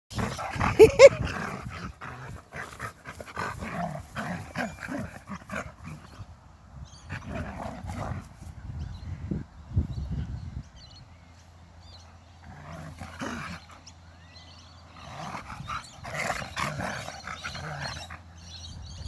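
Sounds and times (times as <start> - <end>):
dogs play growling: 0.1 - 8.7, 11.8 - 19.0
dogs yelping: 0.3 - 1.4.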